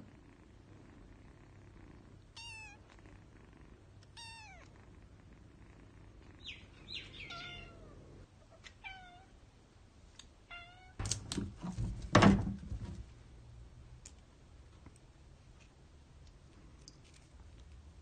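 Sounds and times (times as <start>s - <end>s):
kitten mewing: 2.4s - 2.8s, 4.2s - 4.7s.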